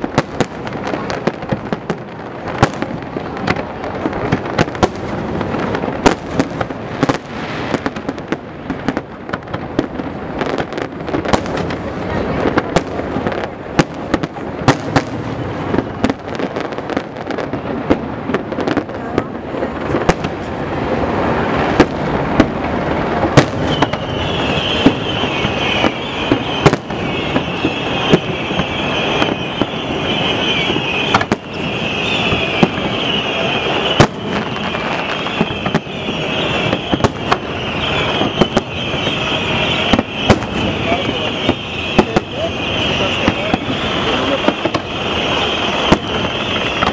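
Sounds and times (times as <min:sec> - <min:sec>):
continuous rumbling din: 0:00.0 - 0:46.9
fireworks bursting: 0:00.0 - 0:46.9.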